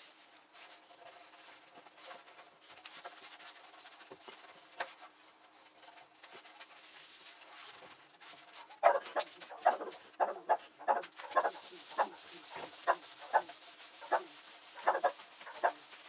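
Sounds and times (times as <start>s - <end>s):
cloth wiping wood: 6.3s - 10.0s, 10.9s - 16.0s.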